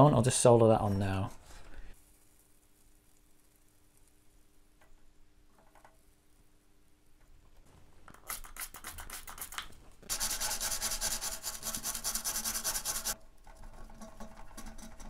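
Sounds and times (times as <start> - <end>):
stiff brush scrubbing circuit board: 8.3 - 13.2.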